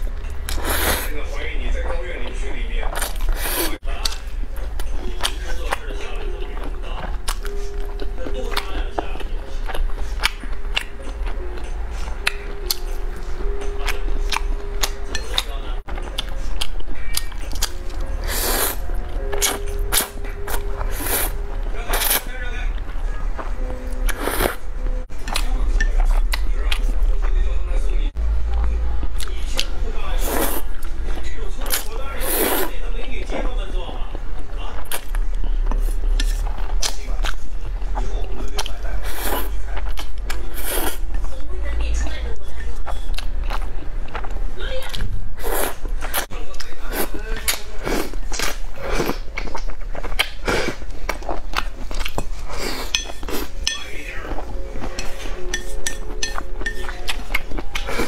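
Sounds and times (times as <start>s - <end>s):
slurping noodles: 0.5s - 1.1s, 3.0s - 3.8s, 18.2s - 18.8s, 24.1s - 24.6s, 32.2s - 32.7s.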